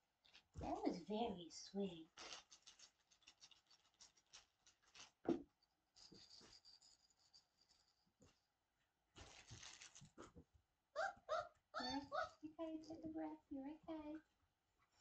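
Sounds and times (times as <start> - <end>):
toy rattle: 0.2 - 1.0, 2.1 - 5.2, 5.9 - 8.0.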